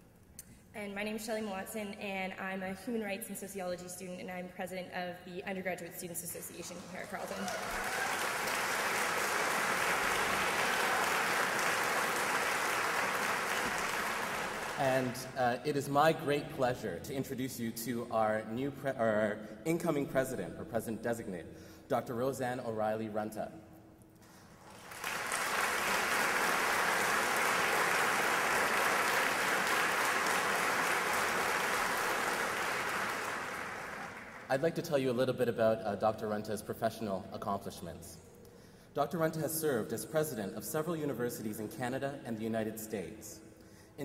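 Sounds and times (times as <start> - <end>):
audience applauding: 7.0 - 15.2, 24.6 - 34.5.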